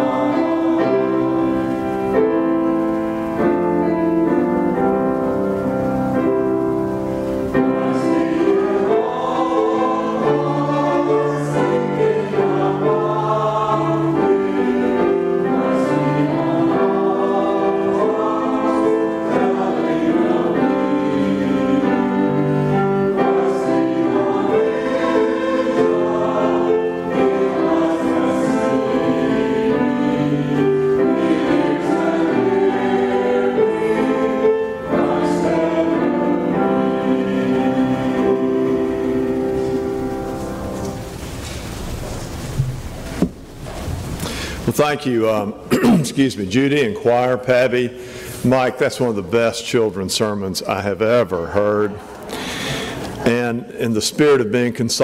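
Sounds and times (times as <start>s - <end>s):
choir singing in parts: 0.0s - 41.1s
piano accompaniment: 0.0s - 55.0s.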